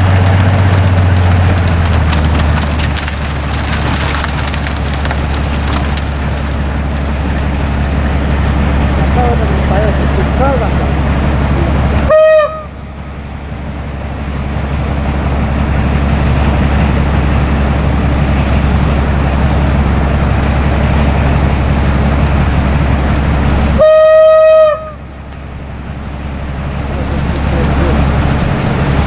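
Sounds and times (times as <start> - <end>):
snow blower rumbling: 0.0 - 29.0
train horn: 12.1 - 12.8, 23.8 - 25.0.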